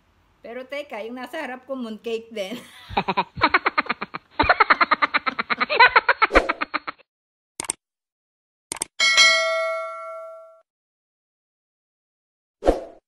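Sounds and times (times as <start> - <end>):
woman laughing: 2.4 - 7.0
short clicks: 7.6 - 7.8, 8.7 - 8.9
bright bell ding: 9.0 - 10.6.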